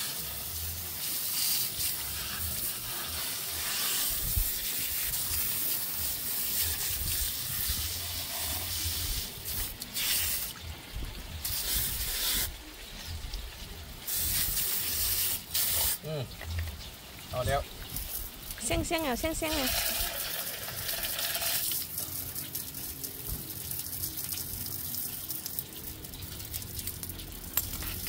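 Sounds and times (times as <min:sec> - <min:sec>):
hose spraying water: 0:00.0 - 0:28.0.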